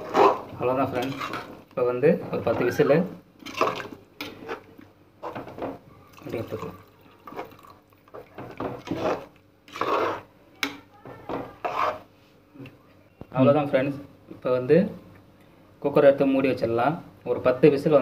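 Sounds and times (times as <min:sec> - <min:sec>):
ladle scraping metal pot: 0:00.0 - 0:01.6, 0:02.6 - 0:05.6, 0:08.4 - 0:10.8, 0:11.4 - 0:12.1.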